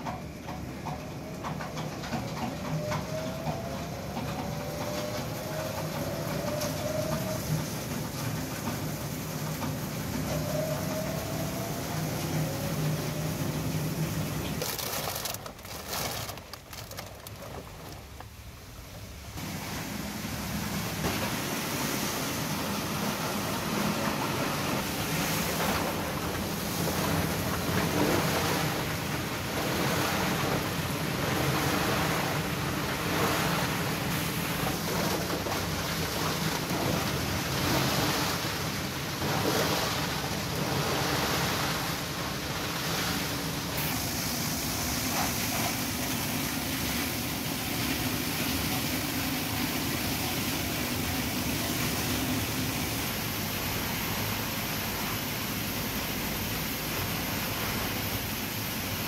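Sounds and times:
screw conveyor churning water: 0.0 - 59.0
plastic bottle crusher grinding: 14.4 - 18.2.

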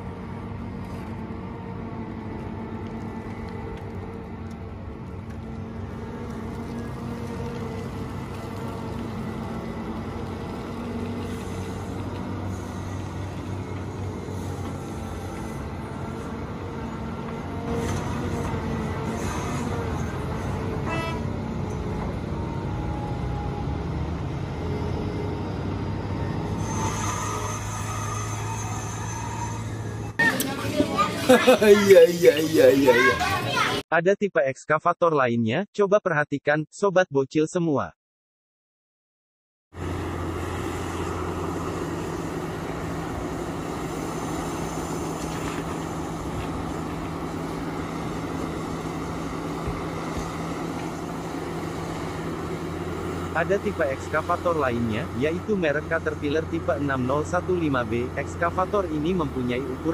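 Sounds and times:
excavator diesel engine droning: 0.0 - 33.8, 39.8 - 59.9.

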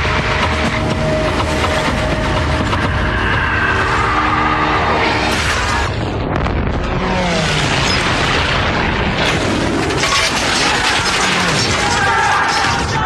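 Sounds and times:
low engine drone: 0.0 - 9.8
explosions and booms: 5.1 - 13.0.

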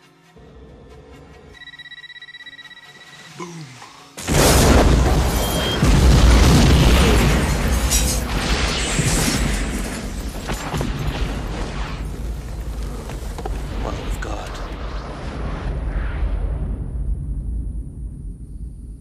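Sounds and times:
bomb explosion with low rumble: 4.3 - 19.0.

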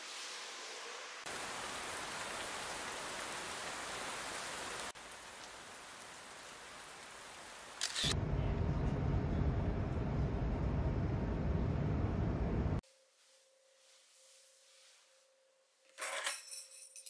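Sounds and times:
rain falling: 0.0 - 8.0.

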